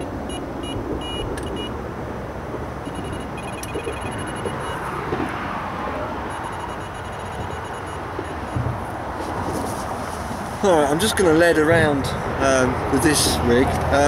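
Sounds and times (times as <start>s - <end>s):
electronic bite alarm beeping: 0.0s - 1.8s, 2.8s - 4.9s, 6.3s - 8.6s
road traffic noise: 0.0s - 14.0s.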